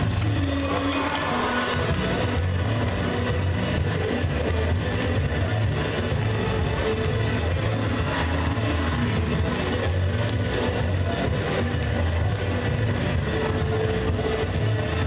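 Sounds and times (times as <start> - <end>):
rock music over loudspeakers: 0.0 - 15.0.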